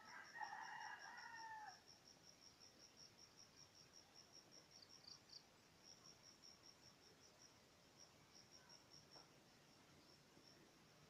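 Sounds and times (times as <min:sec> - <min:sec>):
rooster crowing: 0:00.0 - 0:01.8
insect chirping: 0:00.0 - 0:11.0.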